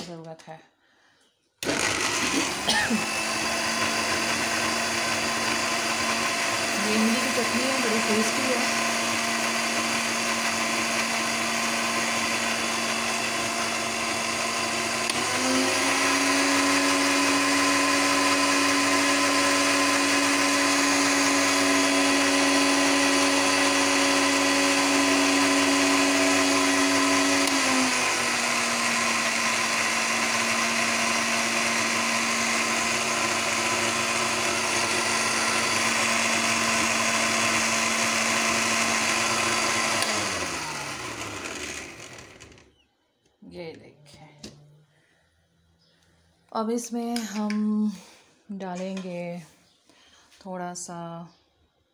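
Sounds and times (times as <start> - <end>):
electric mixer grinder running: 1.6 - 42.8.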